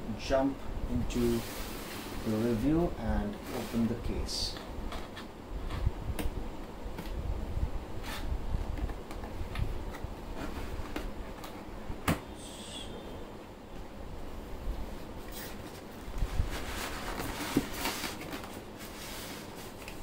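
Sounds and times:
cardboard box scraping: 15.4 - 19.8.

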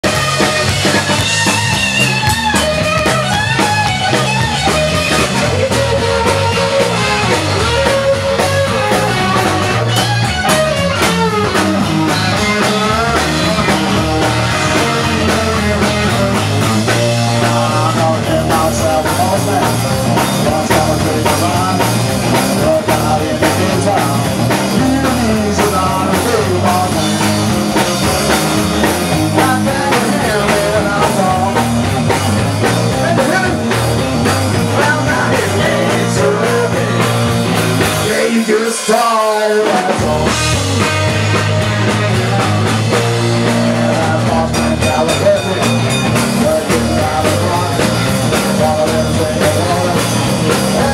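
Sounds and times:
drums: 0.0 - 50.9
electric guitar: 0.0 - 50.9
rock music: 0.0 - 50.9
person singing: 11.0 - 27.6, 29.2 - 31.9, 32.9 - 50.9.

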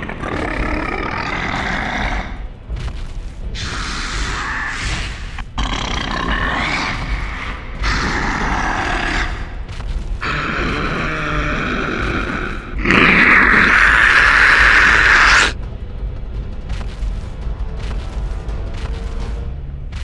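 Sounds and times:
monster growls and roars: 0.0 - 2.6, 3.5 - 15.6.

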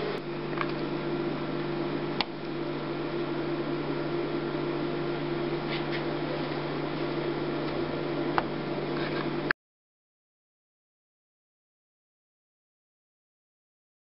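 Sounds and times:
printer mechanical hum: 0.0 - 9.5.

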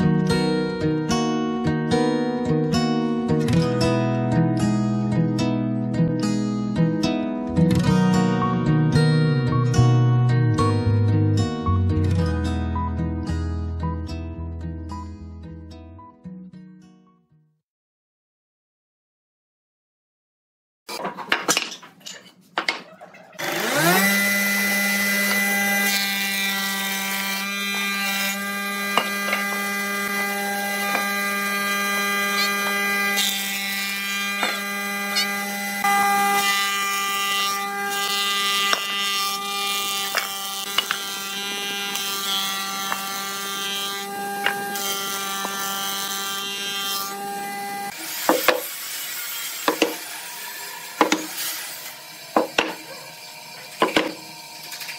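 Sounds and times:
thickness planer whining and humming: 23.4 - 54.9.

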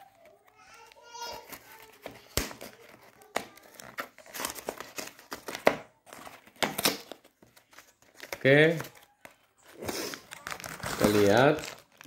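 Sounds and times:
cardboard box being torn open: 9.8 - 12.0.

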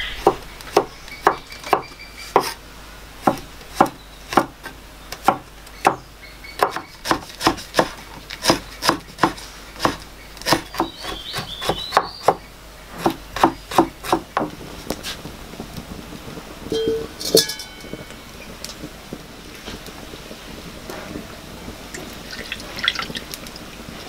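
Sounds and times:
cleaver chopping on wooden board: 6.6 - 12.4, 13.0 - 14.5.

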